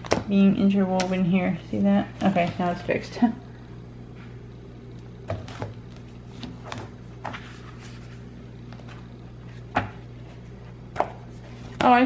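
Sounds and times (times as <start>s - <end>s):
steady low hum: 0.0s - 12.0s
paper pages turning: 5.4s - 9.7s.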